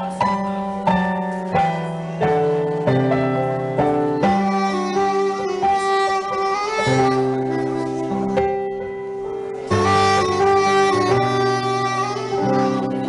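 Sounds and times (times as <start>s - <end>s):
piano chords: 0.0s - 13.0s
saxophone melody: 4.1s - 8.7s, 9.5s - 13.0s.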